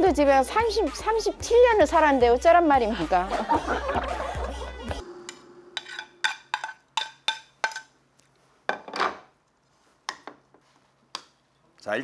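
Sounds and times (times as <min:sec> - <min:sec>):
chopsticks scraping bowl: 0:05.2 - 0:07.1.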